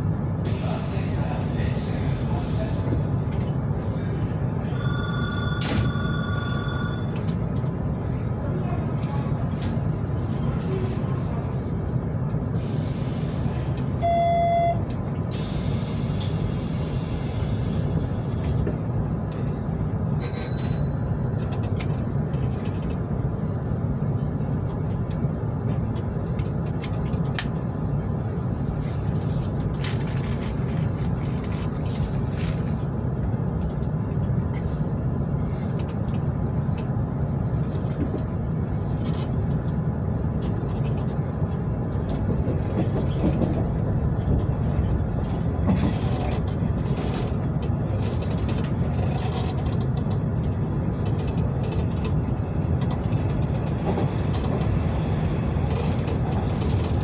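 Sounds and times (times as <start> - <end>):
electric train rumbling: 0.0 - 57.0
short beep: 4.8 - 7.2, 14.0 - 14.8.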